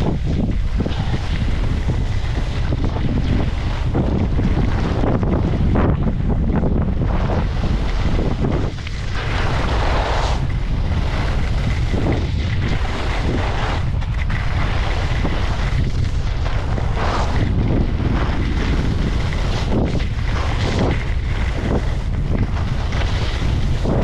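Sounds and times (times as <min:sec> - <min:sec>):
skis scraping packed snow: 0:00.0 - 0:24.0
wind buffeting microphone: 0:00.0 - 0:24.0.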